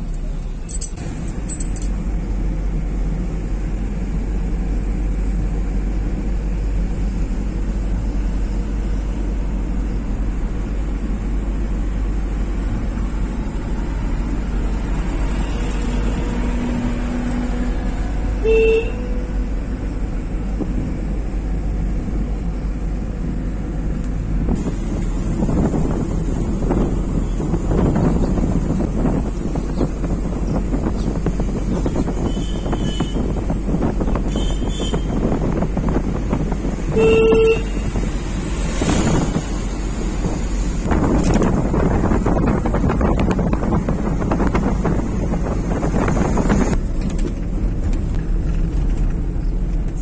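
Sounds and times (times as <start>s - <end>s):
car engine and road noise: 0.0s - 50.0s
short vehicle horn toot: 18.4s - 19.1s, 32.2s - 33.2s, 34.2s - 35.2s, 36.9s - 37.9s.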